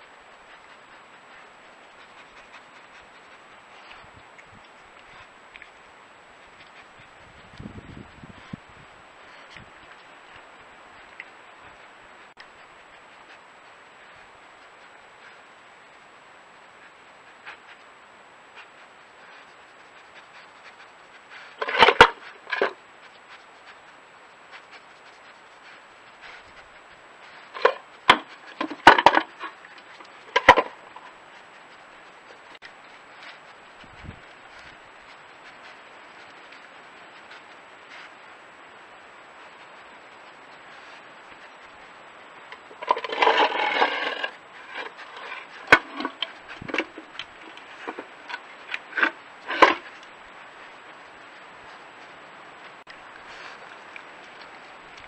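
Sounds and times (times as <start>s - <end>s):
wooden box scraping on paving: 21.4s - 22.8s, 27.5s - 31.1s, 42.7s - 50.0s
wooden box clattering on paving: 27.6s - 29.5s, 30.3s - 30.8s, 42.8s - 45.0s.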